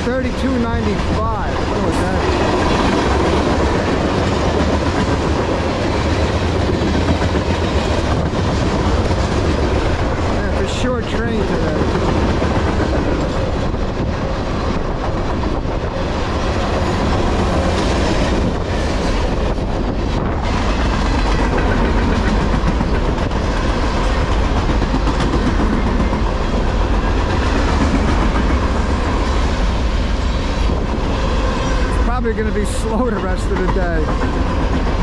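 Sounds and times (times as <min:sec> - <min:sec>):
rail clicks: 0:00.0 - 0:35.0.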